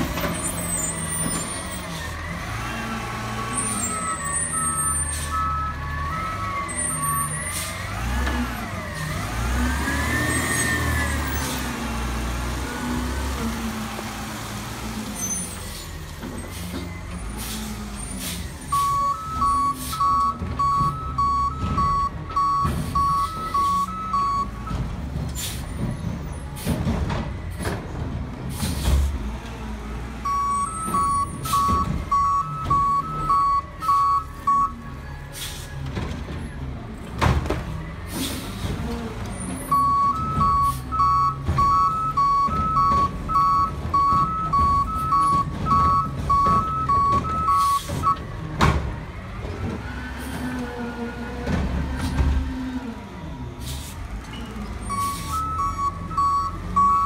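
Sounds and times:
reversing alarm beeping: 0:03.4 - 0:07.7, 0:18.7 - 0:24.8, 0:30.2 - 0:35.0, 0:39.7 - 0:48.2, 0:54.9 - 0:57.0.

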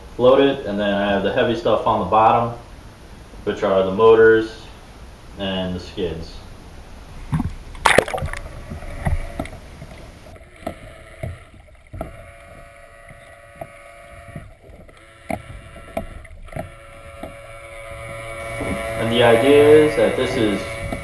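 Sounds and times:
steady hum: 0:00.0 - 0:21.0
muffled underwater sloshing: 0:01.0 - 0:21.0
water splashing: 0:06.0 - 0:21.0.

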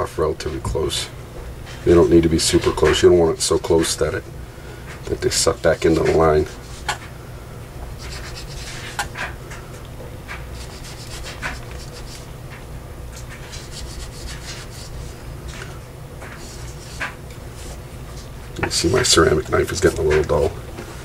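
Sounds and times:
knife sawing through rope: 0:10.6 - 0:12.3, 0:13.4 - 0:15.2.

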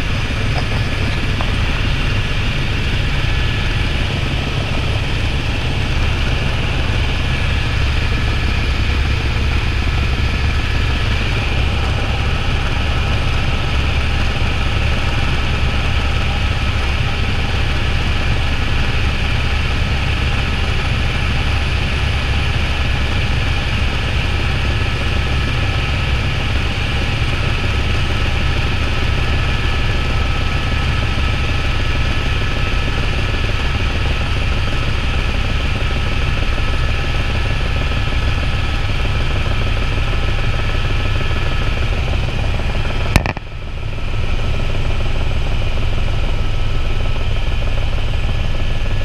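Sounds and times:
helicopter rotor and engine drone: 0:00.0 - 0:49.0
high turbine whine: 0:00.0 - 0:49.0
sharp click: 0:43.1 - 0:43.5.

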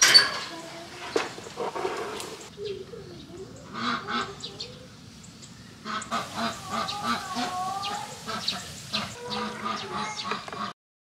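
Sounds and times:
waterfowl honking: 0:03.7 - 0:04.8, 0:05.8 - 0:10.8.

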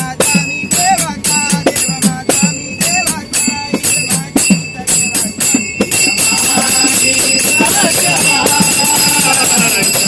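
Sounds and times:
jingling metal percussion: 0:00.0 - 0:10.0
men singing in chorus: 0:00.0 - 0:10.0.

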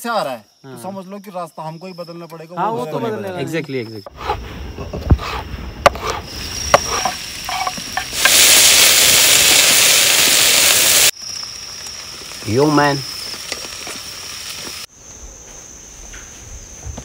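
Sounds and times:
loud steady hiss: 0:05.5 - 0:15.1.

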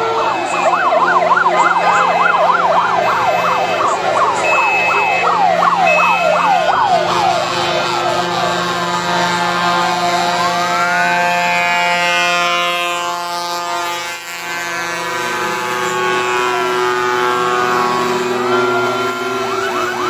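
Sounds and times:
fire engine siren wail: 0:00.0 - 0:20.0
siren yelp: 0:00.0 - 0:20.0
steady siren tones: 0:00.0 - 0:20.0.

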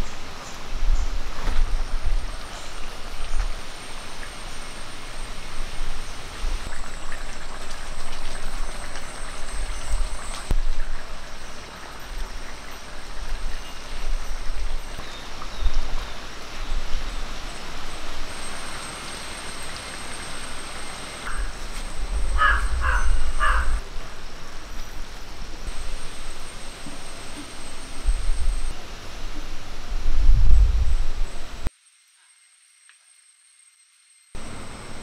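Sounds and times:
curry bubbling and hissing: 0:00.0 - 0:23.0, 0:23.8 - 0:31.7
crow cawing: 0:21.2 - 0:21.6, 0:22.4 - 0:23.8.

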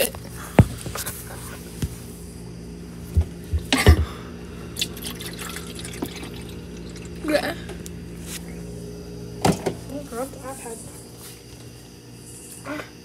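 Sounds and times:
drink pouring into plastic cup: 0:04.8 - 0:07.4.

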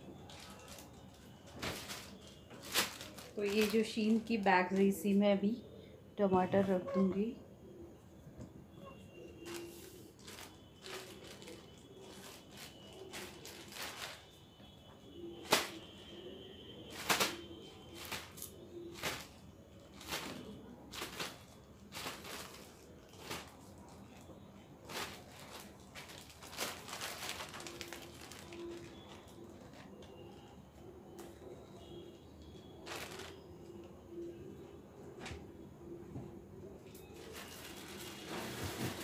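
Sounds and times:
plastic bag crinkling: 0:00.0 - 0:05.2, 0:09.4 - 0:14.5, 0:15.4 - 0:16.0, 0:16.8 - 0:30.6, 0:32.7 - 0:33.7, 0:37.2 - 0:39.0.

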